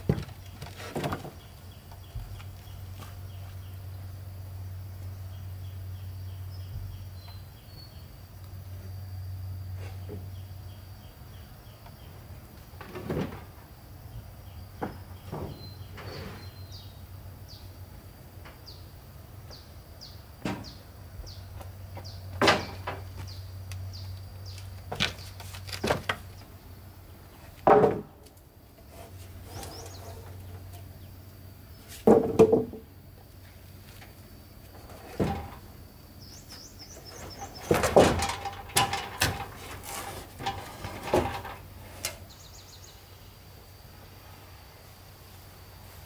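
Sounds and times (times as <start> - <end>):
knocks and clunks: 0.0 - 2.6, 14.7 - 16.2, 20.4 - 20.8, 21.6 - 23.4, 27.6 - 28.3, 32.0 - 32.9, 34.7 - 35.8, 36.9 - 42.2.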